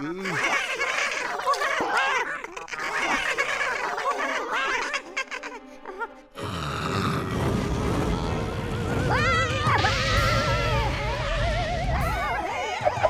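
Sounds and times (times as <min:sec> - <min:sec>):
background music: 0:00.1 - 0:13.0
cartoon mice laughing: 0:00.2 - 0:06.2, 0:09.7 - 0:13.0.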